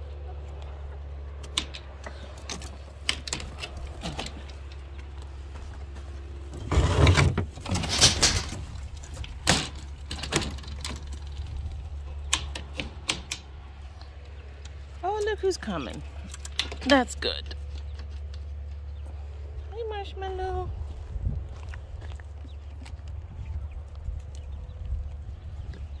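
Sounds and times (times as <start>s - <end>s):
wooden clatter: 6.6s - 13.4s.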